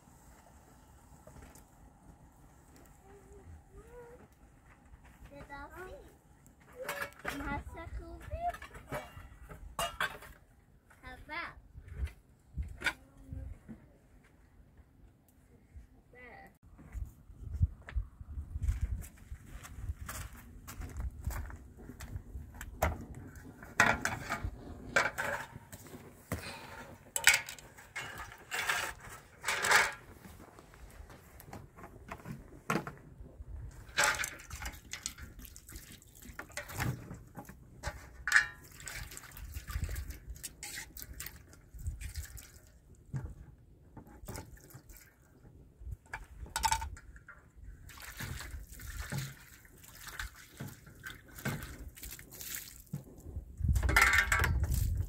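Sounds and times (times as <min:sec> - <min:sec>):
water splashing and trickling: 0:33.6 - 0:55.0.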